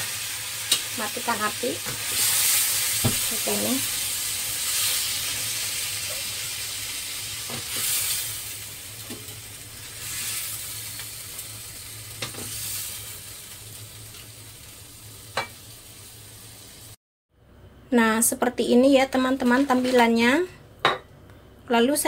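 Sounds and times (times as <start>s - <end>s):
food sizzling in a wok: 0.0s - 17.0s.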